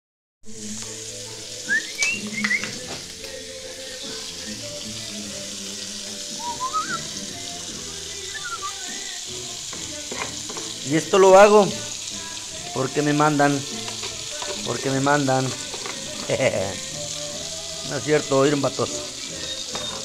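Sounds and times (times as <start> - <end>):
food sizzling in a skillet: 0.5 - 20.0
person whistling a tune: 1.6 - 2.9, 4.3 - 5.2, 6.1 - 7.4, 8.0 - 9.1, 18.9 - 20.0.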